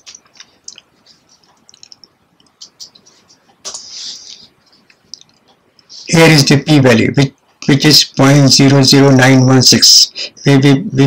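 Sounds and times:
computer keyboard typing: 0.0 - 3.1
short breathy hiss: 3.7 - 4.5.

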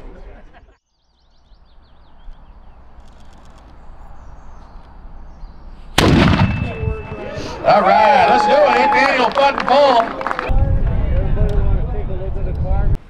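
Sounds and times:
birds chirping: 0.8 - 8.2
cannon boom: 6.0 - 7.2.

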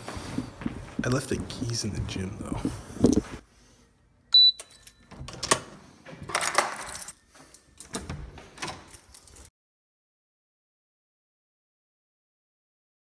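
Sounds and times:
footsteps: 0.0 - 3.4.

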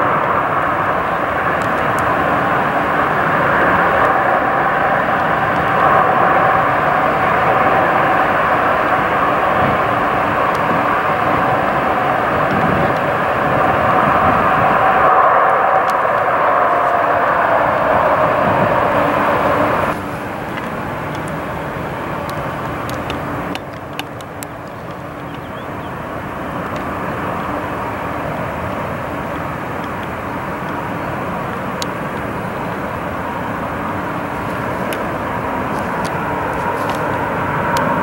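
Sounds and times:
jet engines running: 0.0 - 38.0.

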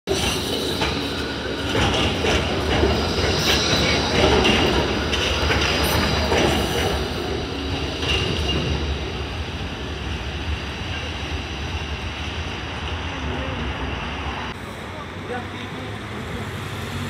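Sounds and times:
tram wheels squealing: 0.1 - 14.5.

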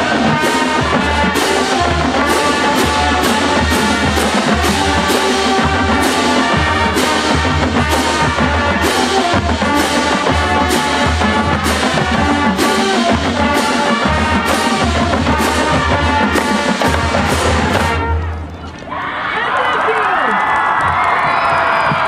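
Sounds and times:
horns holding chords: 0.0 - 18.5
marching band playing: 0.0 - 18.8
drumline: 0.0 - 22.0.

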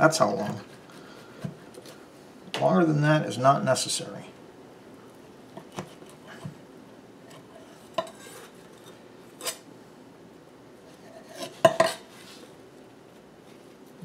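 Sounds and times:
knife scraping: 7.3 - 9.6, 10.9 - 12.4.

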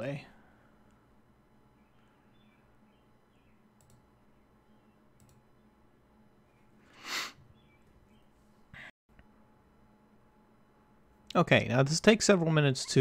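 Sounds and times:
faint mouse clicks: 3.8 - 4.0, 5.2 - 5.4.

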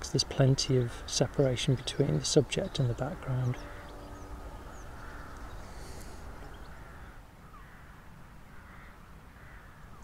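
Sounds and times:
birds cawing: 1.1 - 10.0
steady low rumble: 1.7 - 7.2
faint high bird chirps: 2.0 - 7.7.

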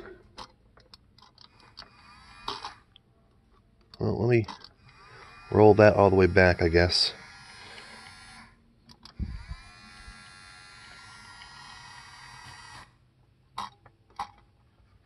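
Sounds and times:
electric motor whine: 1.6 - 2.9, 4.8 - 13.0.

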